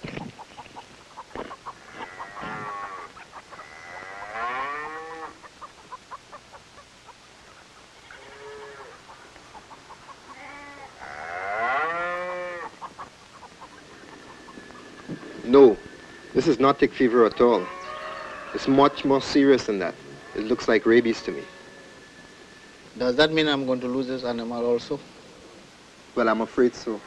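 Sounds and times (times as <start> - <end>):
cow bawling: 1.8 - 5.4, 10.3 - 12.7.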